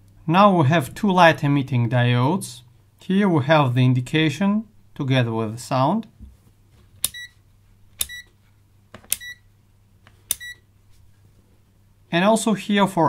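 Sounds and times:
rotary switch clicking: 0:08.0 - 0:08.2
short high meter beep: 0:09.2 - 0:09.4, 0:10.4 - 0:10.6.

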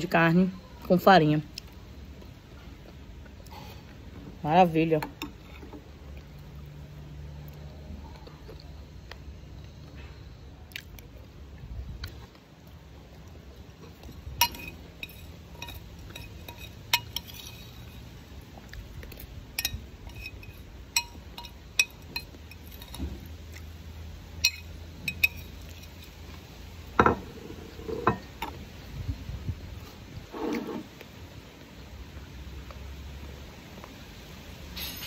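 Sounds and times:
metal spoon clinking on dishes: 0:14.4 - 0:18.0, 0:19.5 - 0:23.1, 0:24.4 - 0:26.1.

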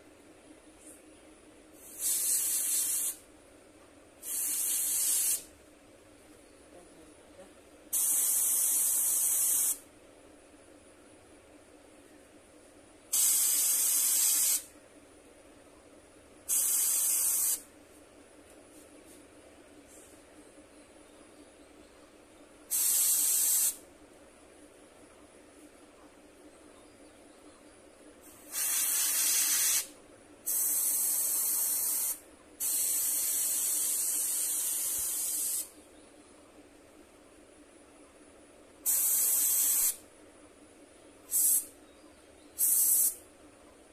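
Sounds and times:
airbrush spraying hiss: 0:01.8 - 0:03.2, 0:04.2 - 0:05.5, 0:07.9 - 0:09.8, 0:13.1 - 0:14.7, 0:16.5 - 0:17.7, 0:22.7 - 0:23.8, 0:28.2 - 0:29.9, 0:30.5 - 0:35.7, 0:38.8 - 0:40.0, 0:41.3 - 0:41.7, 0:42.6 - 0:43.2.

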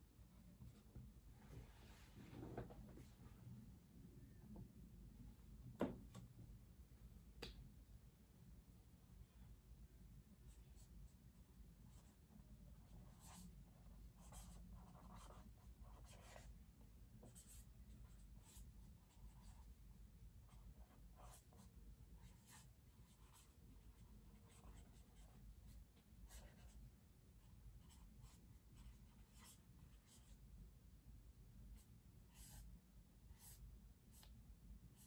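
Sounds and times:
low room hum: 0:00.0 - 0:35.0
pen scratching on paper: 0:12.8 - 0:16.5, 0:17.2 - 0:19.7, 0:20.5 - 0:25.4, 0:26.3 - 0:26.8, 0:27.8 - 0:30.3, 0:32.3 - 0:32.7, 0:33.3 - 0:34.3.

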